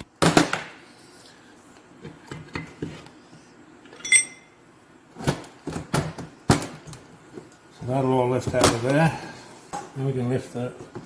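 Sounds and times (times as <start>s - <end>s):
ringing metallic ping: 4.0s - 4.6s.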